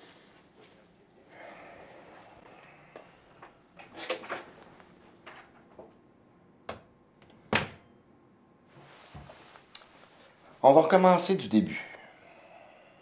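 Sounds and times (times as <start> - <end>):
door opening and shutting: 6.7 - 7.8
soft knocks and rustles: 8.7 - 10.2.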